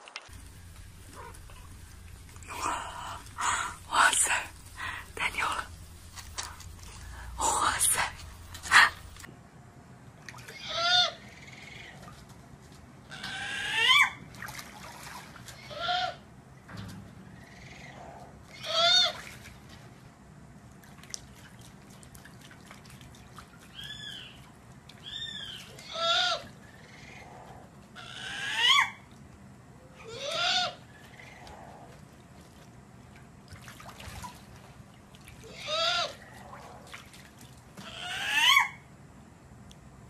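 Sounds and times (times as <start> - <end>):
water splashing in a tub: 0.0 - 9.3, 10.2 - 10.7, 14.2 - 15.7, 18.7 - 20.0, 20.7 - 25.8, 32.0 - 38.0
owl squeaky calls: 28.0 - 29.0, 30.1 - 31.4, 37.8 - 38.8.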